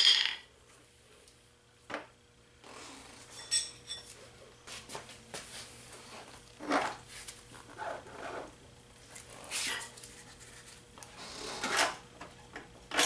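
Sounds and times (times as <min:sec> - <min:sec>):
ringing metal clink: 0:03.4 - 0:04.1.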